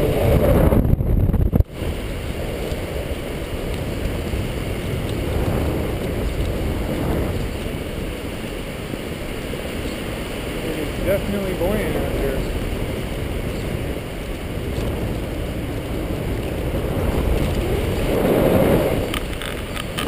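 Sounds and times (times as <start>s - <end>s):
wind rushing over microphone: 0.0s - 20.0s.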